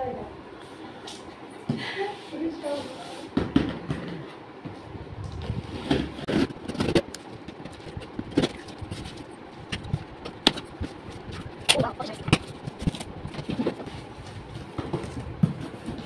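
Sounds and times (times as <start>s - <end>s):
cardboard scraping and crinkling: 5.4s - 9.3s.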